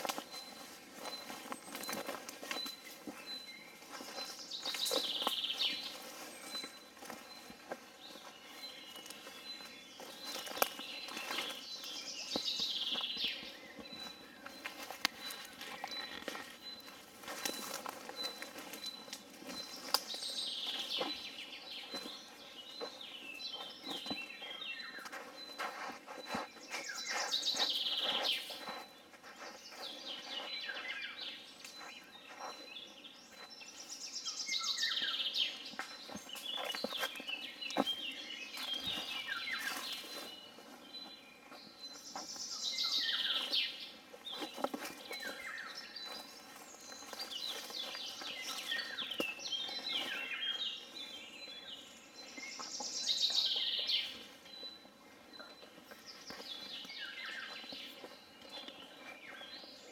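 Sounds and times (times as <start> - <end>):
other birds chirping: 0.0 - 59.9.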